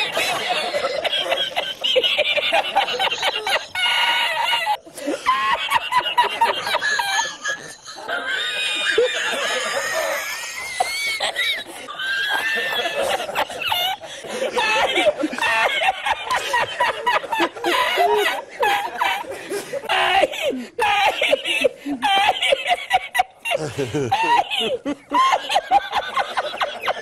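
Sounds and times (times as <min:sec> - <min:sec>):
man laughing: 0:00.0 - 0:27.0.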